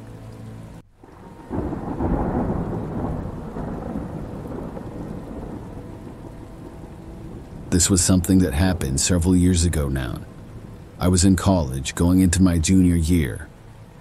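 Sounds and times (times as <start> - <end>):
rain falling: 0.0 - 14.0
thunder rolling: 1.0 - 12.0.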